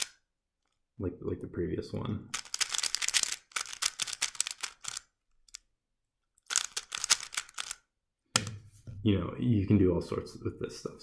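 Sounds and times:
puzzle cube layers clicking: 0.0 - 0.2, 2.3 - 5.7, 6.3 - 7.8.

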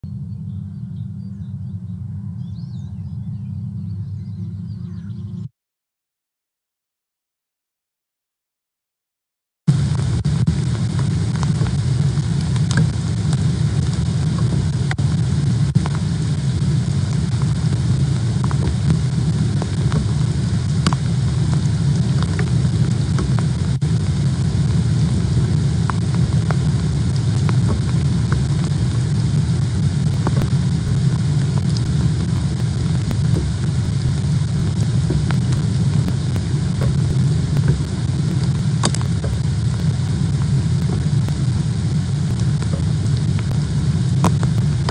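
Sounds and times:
low rumble: 0.0 - 5.5, 9.7 - 44.9
hailstones ticking: 16.6 - 41.6.

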